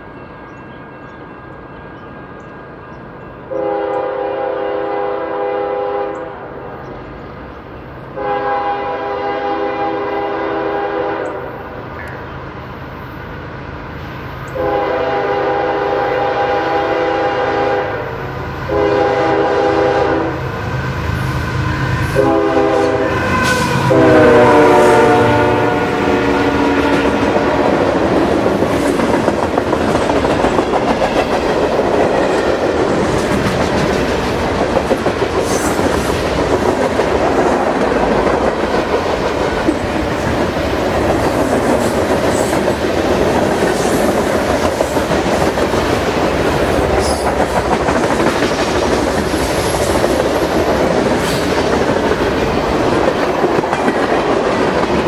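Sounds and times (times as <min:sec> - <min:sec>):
train wheels rumbling on rails: 0:00.0 - 0:55.0
locomotive horn blasts: 0:03.5 - 0:06.5, 0:08.1 - 0:11.7, 0:14.5 - 0:20.4, 0:22.0 - 0:27.4.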